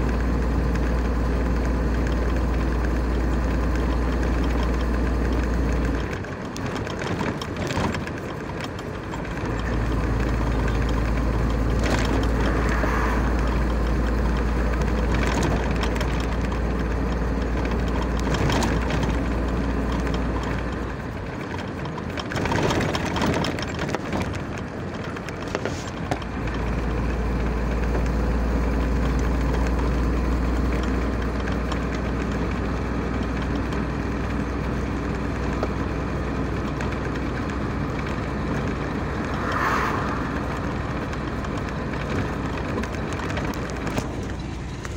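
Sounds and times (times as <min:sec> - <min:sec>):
car road and engine rumble: 0:00.0 - 0:44.9.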